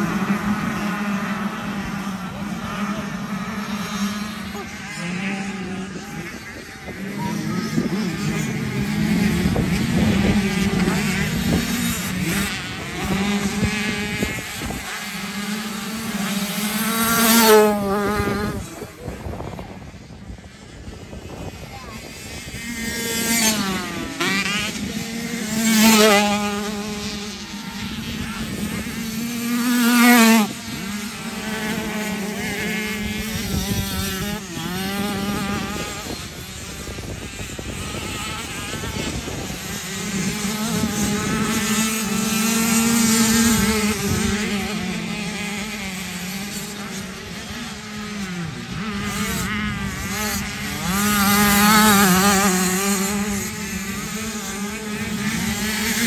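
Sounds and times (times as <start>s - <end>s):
motocross bike engine revving: 0.0s - 56.0s.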